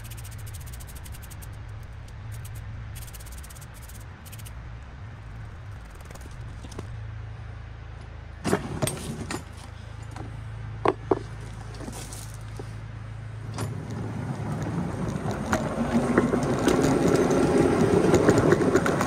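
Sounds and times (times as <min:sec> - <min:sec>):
steady low hum: 0:00.0 - 0:19.0
footsteps on gravel: 0:11.2 - 0:12.8.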